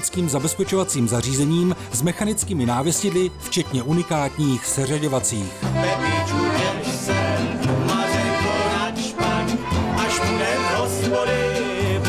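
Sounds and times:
fiddle: 0.0 - 12.0
strummed acoustic guitar: 0.1 - 12.0
two men singing: 5.6 - 12.0.

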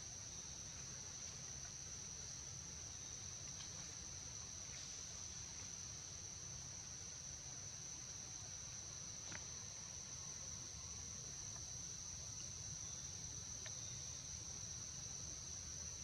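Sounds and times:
high-pitched insect chorus: 0.0 - 16.0
faint ticks: 13.6 - 13.9.

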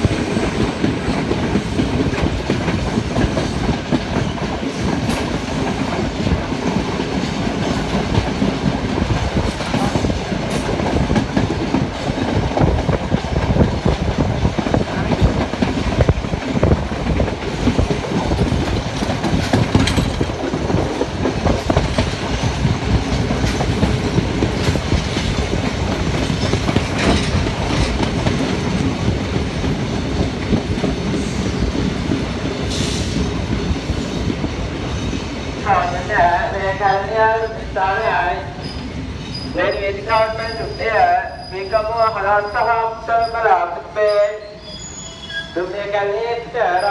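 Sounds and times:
train wheels clattering over rails: 0.0 - 35.7.

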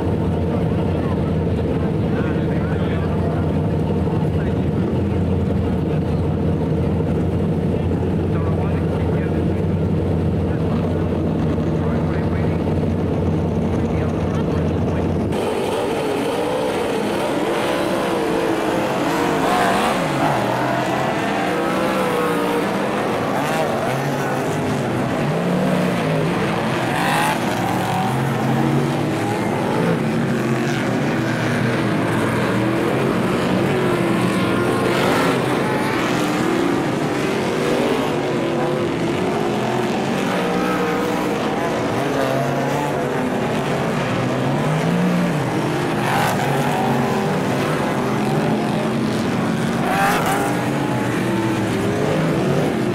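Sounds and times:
race car engines revving: 0.0 - 52.9.

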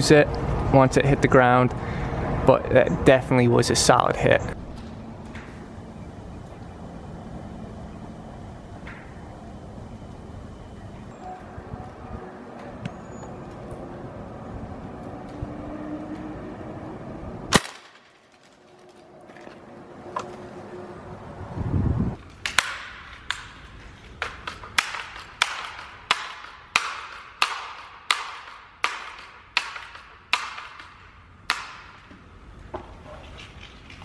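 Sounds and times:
sharp crack: 17.5 - 19.1, 22.2 - 32.3.

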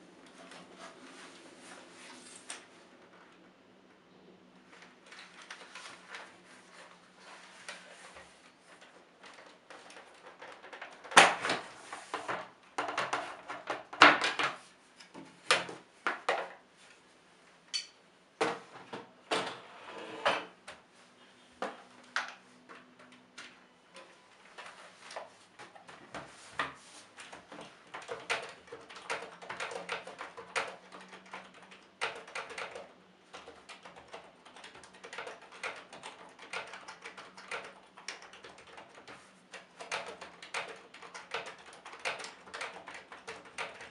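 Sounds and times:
typing on keyboard: 8.8 - 11.4, 27.2 - 43.9
plastic keyboard knocks and clicks: 8.8 - 14.6, 27.3 - 43.9.

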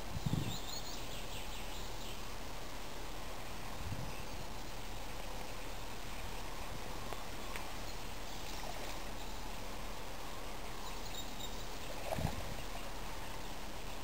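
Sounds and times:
steady outdoor hiss: 0.0 - 14.0
faint high chirp: 10.7 - 14.0.

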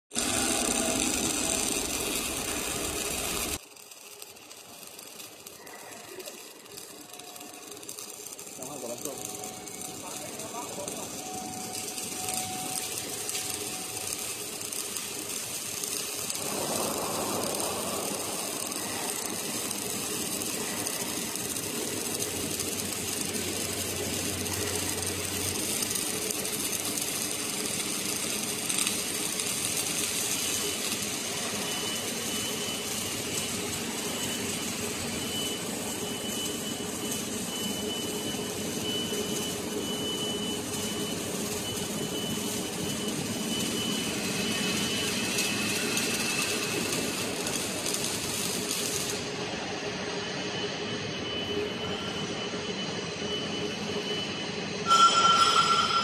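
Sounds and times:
robotic welding machine noise: 0.1 - 56.0
thin high tone: 5.4 - 26.3, 50.4 - 56.0.

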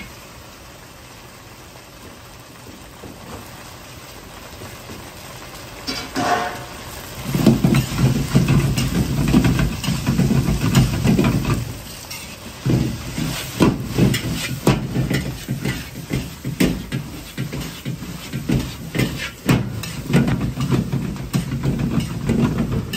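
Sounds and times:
food sizzling: 0.0 - 22.9
gas burner rumble and hiss: 0.0 - 22.9
ladle scraping and knocking wok: 5.8 - 22.9.

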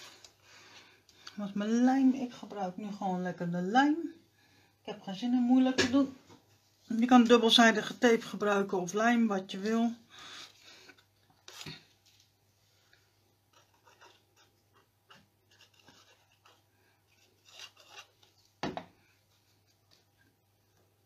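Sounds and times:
paper rustling and scraping: 13.5 - 18.6.

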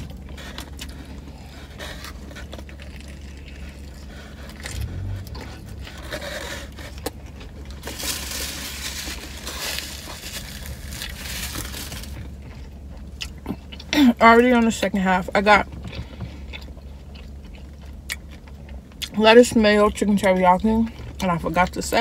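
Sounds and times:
biting and chewing food: 0.0 - 21.8
steady low hum: 0.0 - 22.0
paper wrapper crinkling: 5.9 - 12.4.

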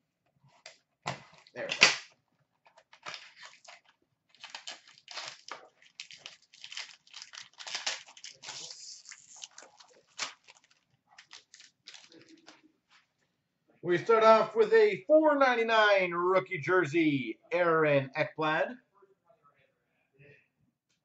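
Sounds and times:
wrapper crinkling and tearing: 2.7 - 12.6.

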